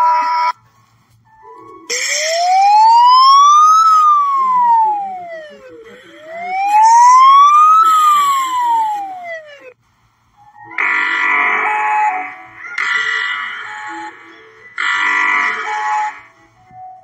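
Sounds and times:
rising and falling siren: 0:01.9 - 0:09.8.

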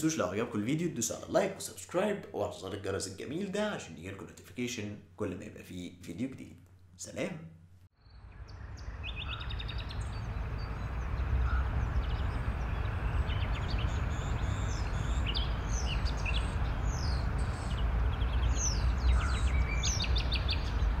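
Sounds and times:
low rumble and hiss: 0:07.0 - 0:21.0
small birds chirping: 0:08.0 - 0:21.0.

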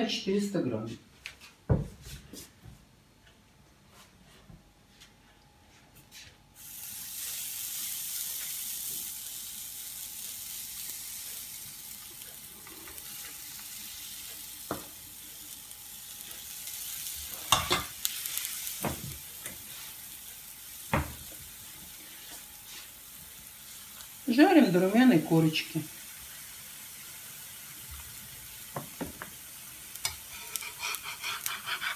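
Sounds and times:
batter sizzling in hot oil: 0:06.6 - 0:31.9.

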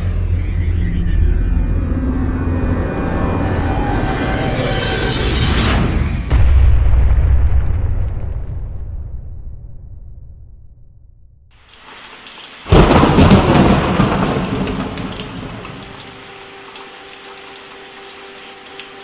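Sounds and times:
rain falling: 0:11.5 - 0:19.0
loud thunderclap rumbling: 0:12.7 - 0:16.2.

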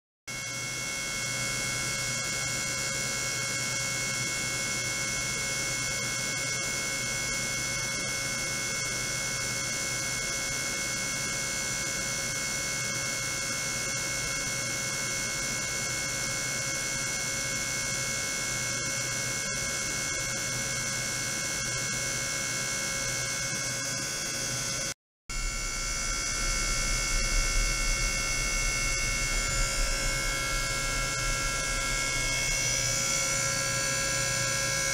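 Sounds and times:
electronic whine of held tones: 0:00.3 - 0:34.9
low hum: 0:25.3 - 0:34.9.

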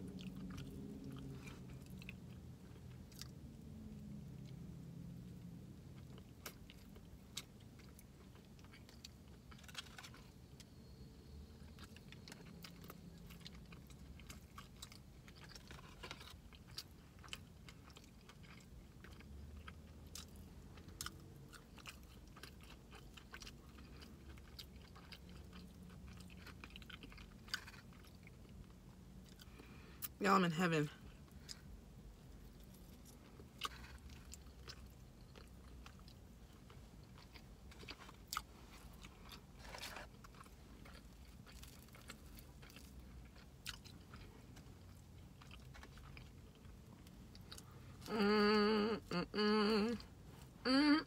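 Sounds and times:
person chewing: 0:00.0 - 0:03.4, 0:05.8 - 0:30.2, 0:32.4 - 0:51.0.

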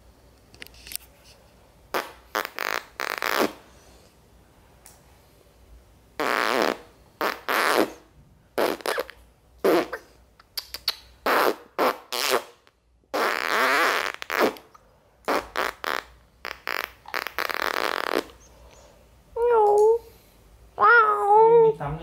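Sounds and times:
fake fart noises: 0:01.9 - 0:03.7, 0:06.2 - 0:10.2, 0:10.8 - 0:18.4.

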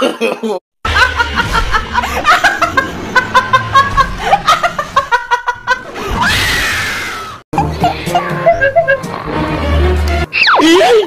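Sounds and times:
high-pitched laughter: 0:07.6 - 0:09.3, 0:10.3 - 0:11.0.

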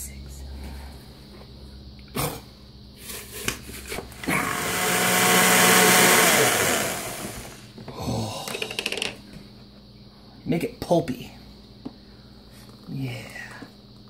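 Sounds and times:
blender running: 0:04.1 - 0:07.7.

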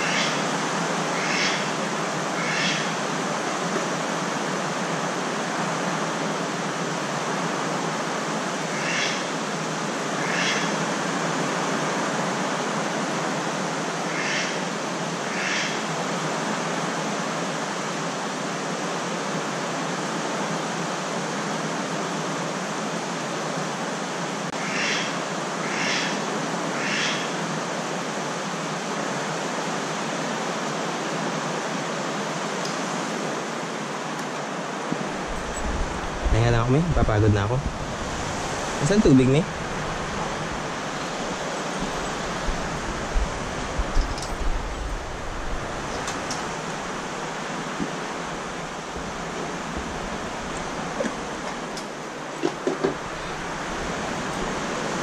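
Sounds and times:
short high animal calls: 0:01.2 - 0:01.7, 0:26.8 - 0:27.3
heavy rain rushing: 0:27.4 - 0:55.0.

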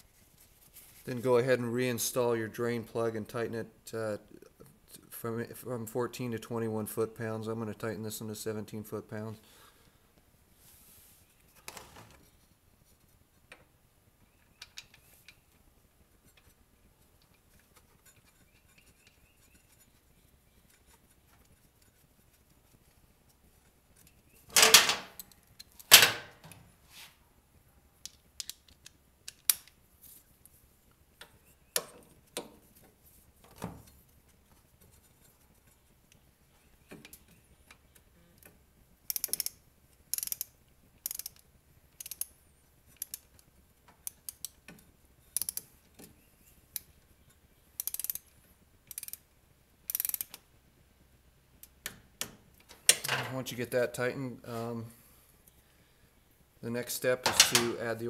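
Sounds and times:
socket ratchet clicking: 0:39.1 - 0:41.4, 0:42.0 - 0:42.3, 0:45.4 - 0:45.7, 0:47.8 - 0:48.3, 0:48.9 - 0:49.2, 0:49.9 - 0:50.4.

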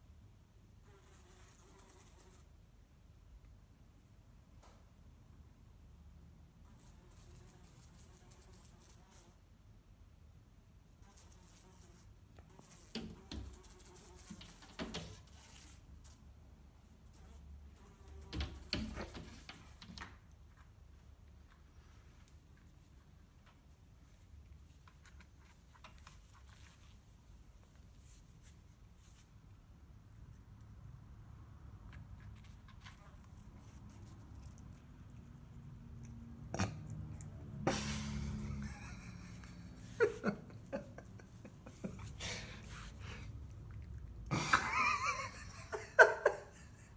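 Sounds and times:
soft rustles: 0:20.3 - 0:29.6
person stifled laughter: 0:37.7 - 0:42.7, 0:44.3 - 0:46.9.

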